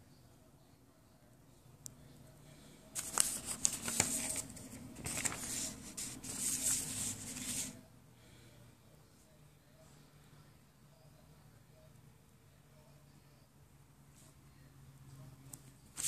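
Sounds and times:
paper rustling and crinkling: 0:03.0 - 0:07.8.

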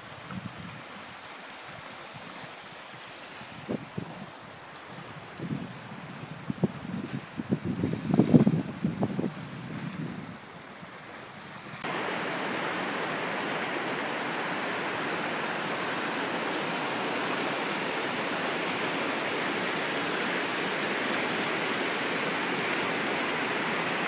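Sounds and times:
river rapids rushing over rocks: 0:11.8 - 0:24.0.

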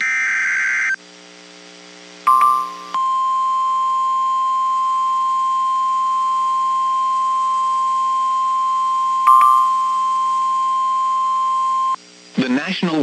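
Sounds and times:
short higher beep: 0:02.3 - 0:04.6
steady high-pitched alarm tone: 0:02.3 - 0:12.0.

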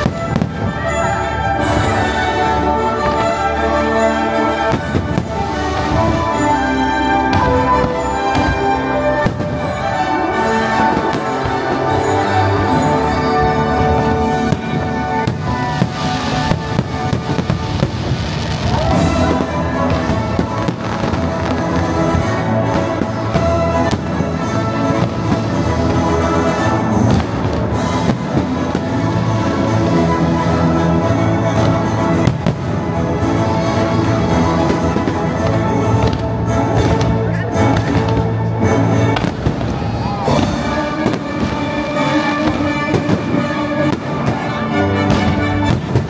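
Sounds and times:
fireworks bursting with sharp bangs: 0:00.0 - 0:46.0
orchestral music with brass and strings: 0:00.0 - 0:46.0.

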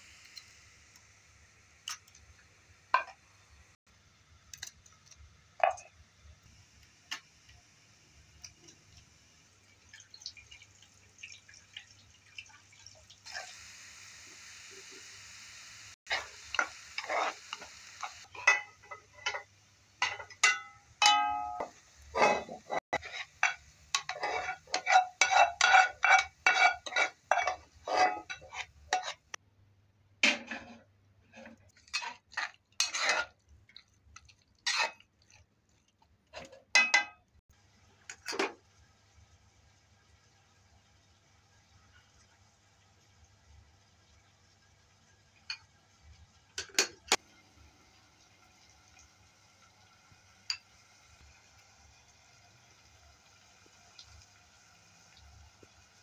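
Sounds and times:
onions sizzling: 0:00.0 - 0:11.0, 0:13.0 - 0:29.4, 0:31.8 - 0:43.0, 0:47.2 - 0:56.0
spatula scraping pot: 0:16.1 - 0:20.7, 0:21.6 - 0:29.4, 0:30.2 - 0:35.5.

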